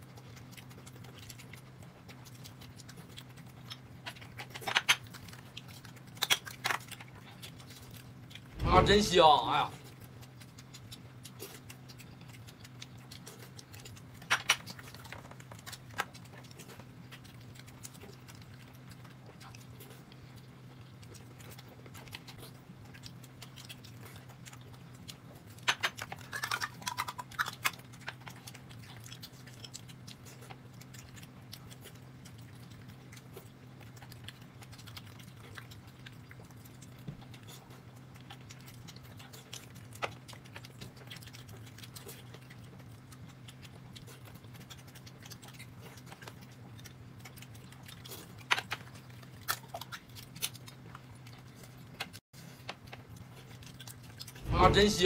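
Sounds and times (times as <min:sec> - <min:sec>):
person chewing: 0:00.0 - 0:08.9, 0:09.8 - 0:54.9
steady low hum: 0:07.2 - 0:14.2, 0:54.1 - 0:55.0.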